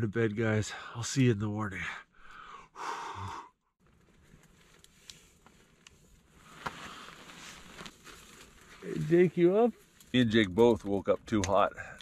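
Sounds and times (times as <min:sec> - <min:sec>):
breathy exhale: 0:02.2 - 0:03.6
sleeping bag rustling: 0:06.3 - 0:09.9.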